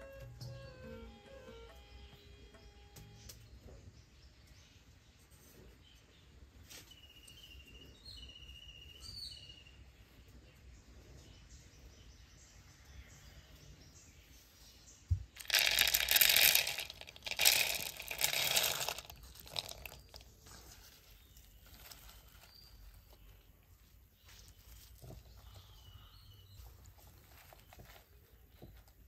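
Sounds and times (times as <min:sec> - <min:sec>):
faint bird chirps: 0:00.0 - 0:15.4, 0:18.6 - 0:29.0
ingredients crunching and rattling: 0:15.4 - 0:23.5.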